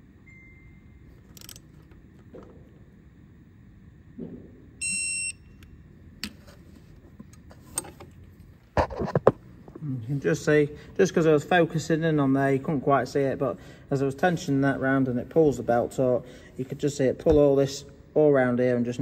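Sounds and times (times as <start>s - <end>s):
torque wrench beep: 0.2s - 1.6s, 4.8s - 5.7s.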